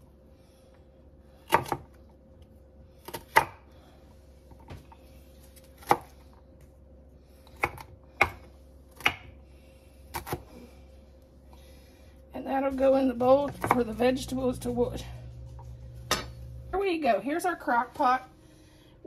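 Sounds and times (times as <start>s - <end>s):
knife chopping on wooden board: 3.0s - 3.6s, 5.6s - 6.2s, 7.5s - 9.3s.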